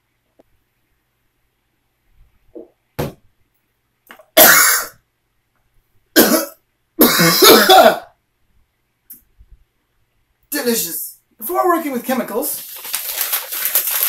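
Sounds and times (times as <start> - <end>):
person coughing: 4.4 - 5.0, 6.2 - 8.1.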